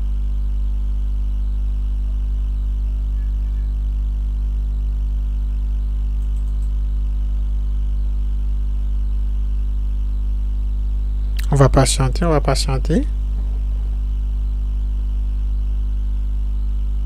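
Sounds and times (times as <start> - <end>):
low electrical hum: 0.0 - 17.0
faint ticks: 6.2 - 6.8.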